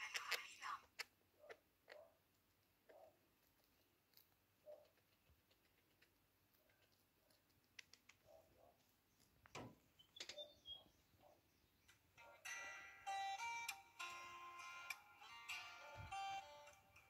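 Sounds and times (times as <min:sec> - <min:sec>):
small animal nibbling food: 0:00.0 - 0:09.5.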